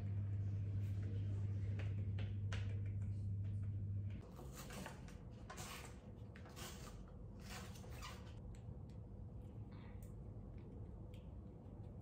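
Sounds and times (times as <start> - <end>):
low hum: 0.0 - 4.2.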